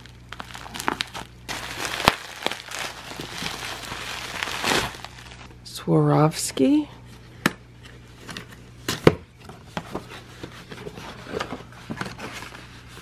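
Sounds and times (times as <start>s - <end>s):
cardboard flaps rustling: 0.4s - 5.5s.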